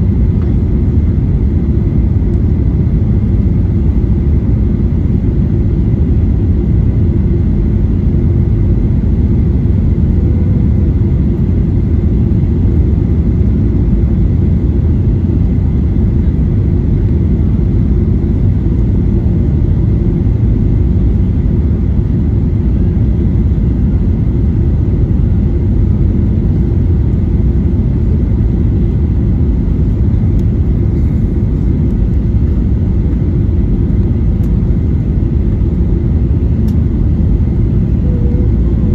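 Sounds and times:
airplane cabin rumble: 0.0 - 38.9
faint high whine: 30.7 - 38.9.

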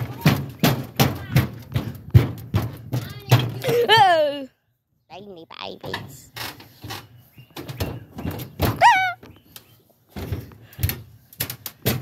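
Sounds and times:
knocks and thuds on metal ramp: 0.0 - 4.2, 5.9 - 9.0, 10.1 - 12.0.

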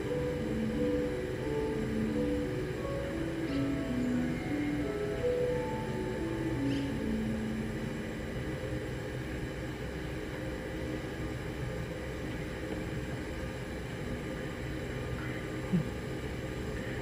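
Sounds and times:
background music: 0.0 - 8.5
low background hum: 0.0 - 17.0.

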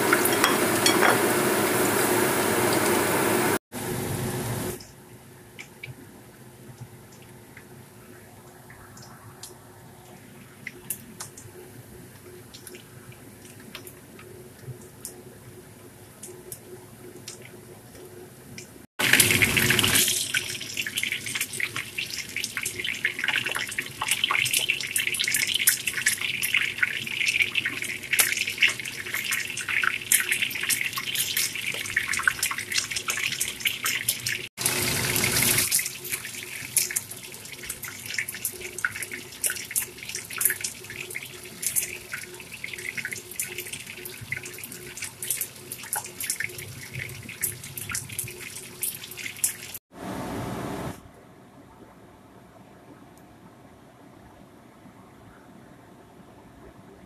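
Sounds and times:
fish frying in hot oil: 19.0 - 49.8.

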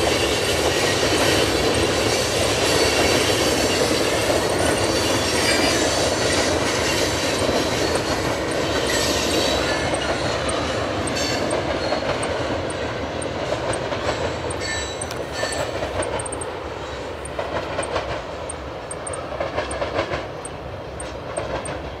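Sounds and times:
high wheel squeal: 0.0 - 12.8, 13.7 - 18.0
train wheels clacking over rail joints: 0.0 - 22.0.

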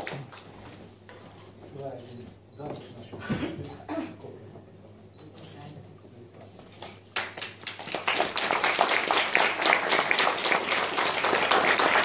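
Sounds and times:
audience applause: 7.2 - 12.0.

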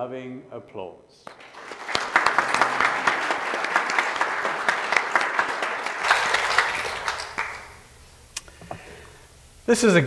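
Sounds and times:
congregation applauding: 1.3 - 7.9.

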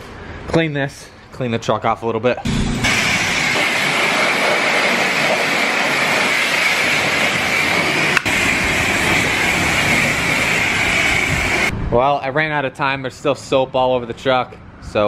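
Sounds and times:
pressure washer spray hiss: 2.8 - 11.7.

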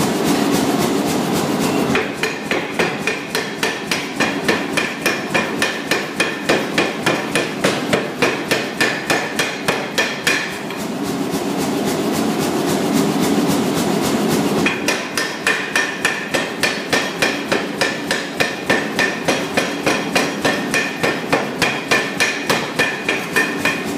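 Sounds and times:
steady rushing noise: 9.4 - 16.7.

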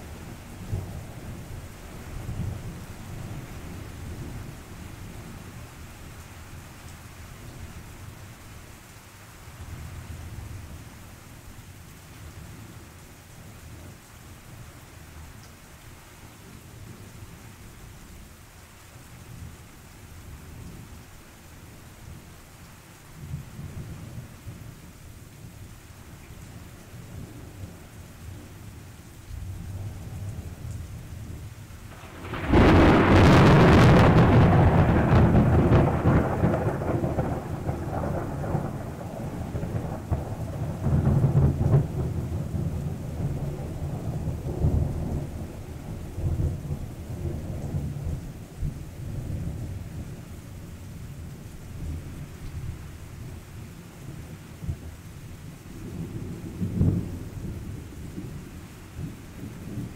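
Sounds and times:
rain falling: 0.0 - 59.9
low rumbling thunder: 29.4 - 50.2, 55.8 - 59.9
loud thunderclap: 31.9 - 43.6.

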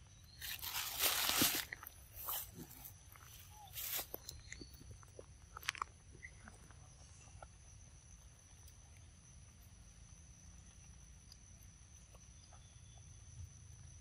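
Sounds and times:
wet chewing clicks and smacks: 4.2 - 6.8.

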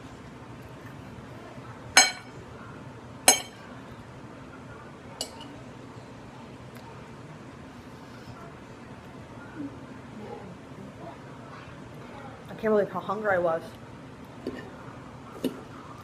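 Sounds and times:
fork clinking on plate: 2.0 - 2.3, 3.3 - 3.6, 5.2 - 5.6.

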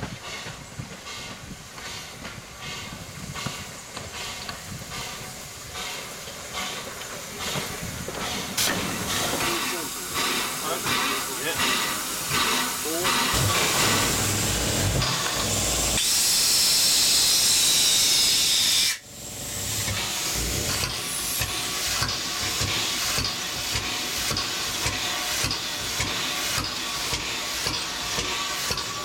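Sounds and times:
steam hissing loudly: 0.0 - 29.0.

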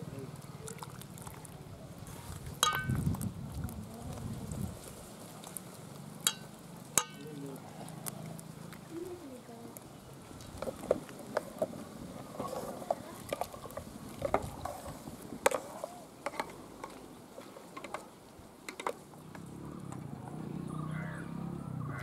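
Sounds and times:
wooden ladle knocking in a pot: 2.6 - 3.0.

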